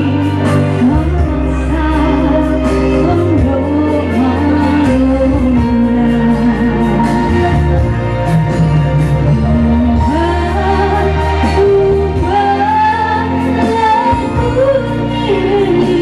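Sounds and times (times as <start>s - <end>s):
instrumental backing: 0.0s - 16.0s
woman singing slow melody: 0.0s - 16.0s.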